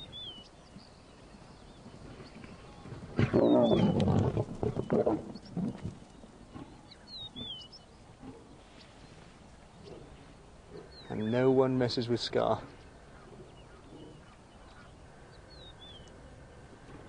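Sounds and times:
lions snarling and growling: 0:03.0 - 0:08.7, 0:09.7 - 0:11.2, 0:12.6 - 0:15.0.

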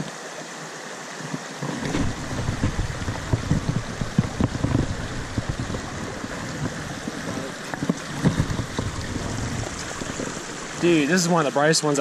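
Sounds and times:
stream running over rocks: 0:00.0 - 0:12.0
low thumps and rustles: 0:01.2 - 0:10.8.

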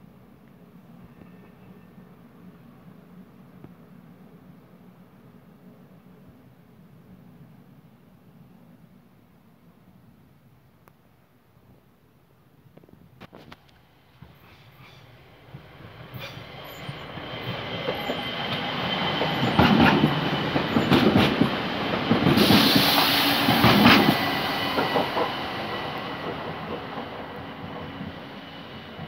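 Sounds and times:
electric train passing: 0:13.7 - 0:29.0.

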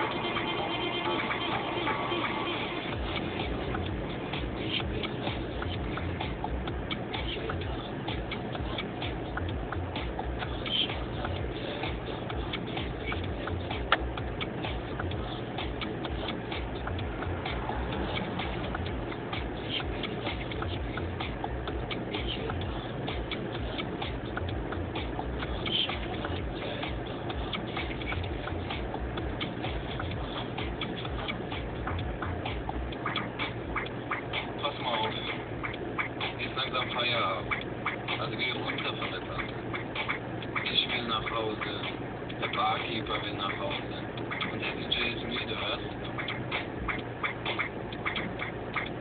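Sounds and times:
car cabin rumble: 0:00.0 - 0:49.0
light ticks: 0:10.0 - 0:17.1.

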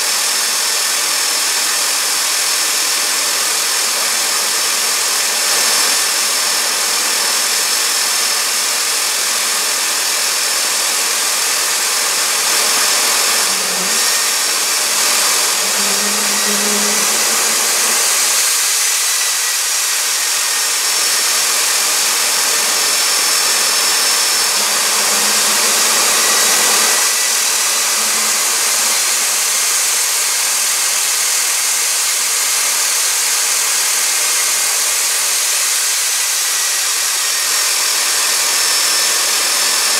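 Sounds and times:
high turbine whine: 0:11.1 - 0:31.6
turbojet engine roaring: 0:11.4 - 0:30.6.

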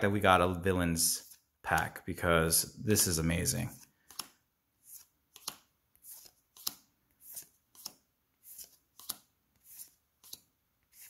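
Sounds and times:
card sliding: 0:03.7 - 0:11.0.

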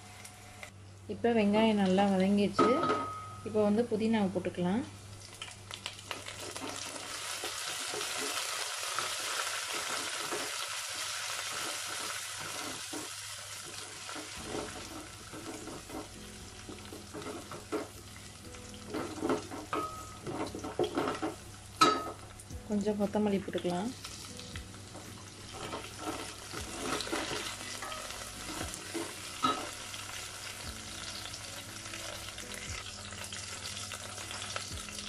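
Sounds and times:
onions sizzling in oil: 0:05.2 - 0:35.0
spatula scraping and knocking pot: 0:11.5 - 0:17.9.

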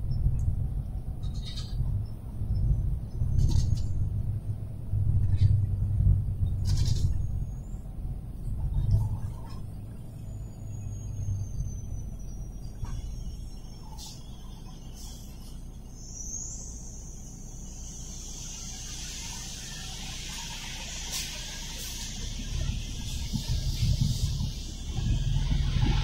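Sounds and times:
road and engine rumble: 0:00.0 - 0:26.0
faint high whine: 0:10.0 - 0:26.0.

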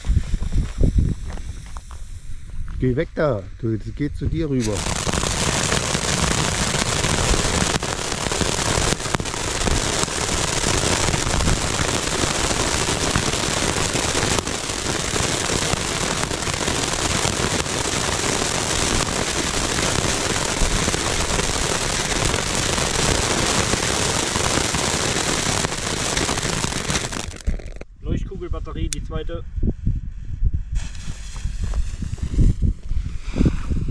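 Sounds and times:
firework sparks hissing: 0:04.6 - 0:27.8, 0:30.8 - 0:33.7
firework cracks: 0:04.6 - 0:27.9, 0:30.8 - 0:32.7.

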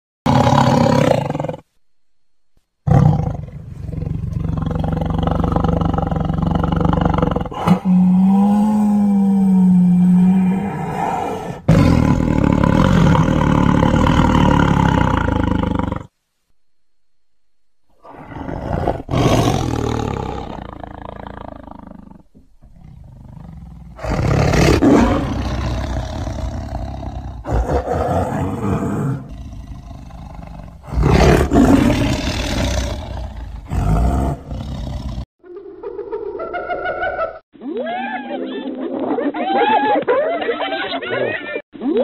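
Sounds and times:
tiger roaring: 0:00.3 - 0:01.7, 0:02.9 - 0:16.1, 0:18.0 - 0:35.3
tiger moaning: 0:02.9 - 0:16.1, 0:17.9 - 0:35.3.

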